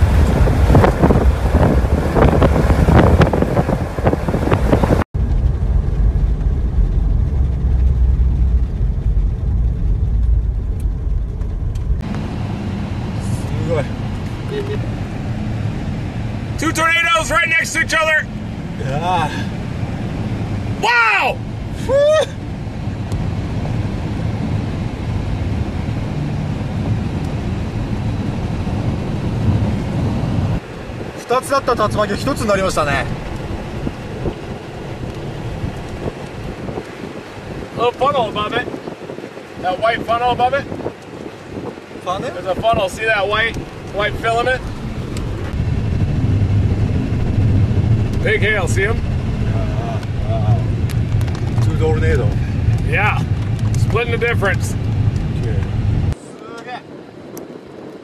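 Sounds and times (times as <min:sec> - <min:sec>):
wind buffeting microphone: 0:00.0 - 0:16.6, 0:21.4 - 0:58.0
low rumble: 0:00.0 - 0:56.3.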